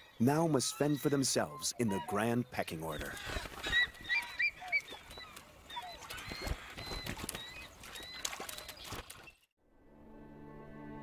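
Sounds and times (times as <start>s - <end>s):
eagles chirping: 0.0s - 9.4s
soft bowed-string music: 9.7s - 11.0s.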